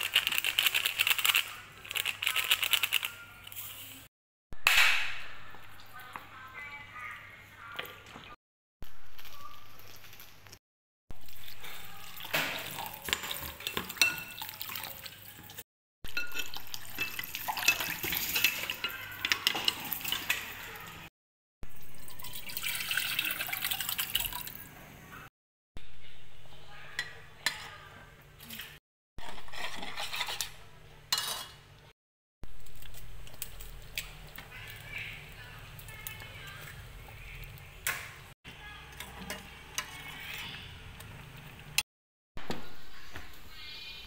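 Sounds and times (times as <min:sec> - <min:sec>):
thick liquid pouring into pot: 0:16.4 - 0:18.3, 0:22.0 - 0:24.6
metal spoon scraping ceramic bowl: 0:29.2 - 0:31.6.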